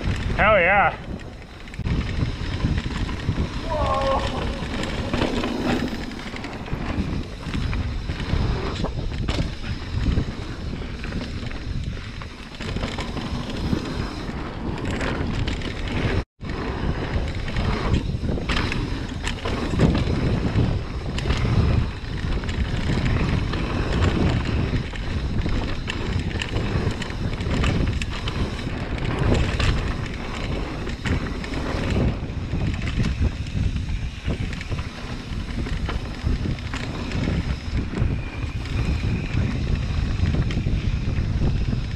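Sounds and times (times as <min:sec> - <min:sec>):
bike knocking and rattling: 0:00.0 - 0:41.9
bike tyres on dirt: 0:00.0 - 0:41.9
wind buffeting microphone: 0:00.0 - 0:41.9.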